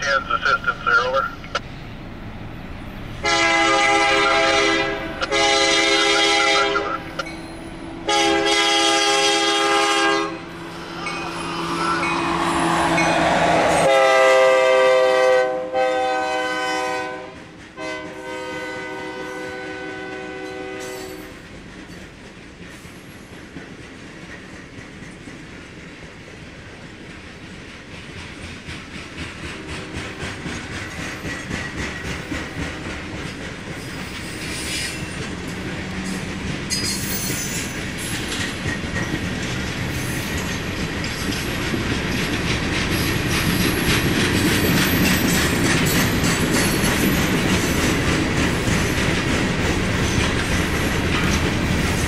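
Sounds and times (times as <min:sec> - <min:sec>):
locomotive engine rushing: 0:00.0 - 0:15.8, 0:23.3 - 0:52.0
train cars rumbling by: 0:00.0 - 0:52.0
locomotive air horn blasts: 0:03.2 - 0:07.1, 0:08.0 - 0:10.7, 0:13.8 - 0:21.4
wheels clicking over rail joints: 0:20.9 - 0:52.0.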